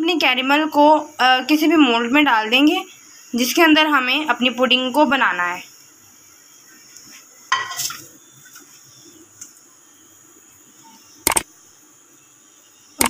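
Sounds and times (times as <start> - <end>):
insects chirring: 0.0 - 13.0
metallic cookware clatter: 7.5 - 8.0.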